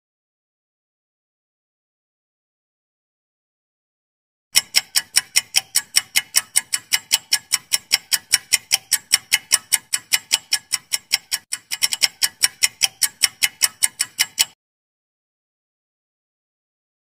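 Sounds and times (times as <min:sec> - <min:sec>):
clock ticking: 0:04.5 - 0:14.6.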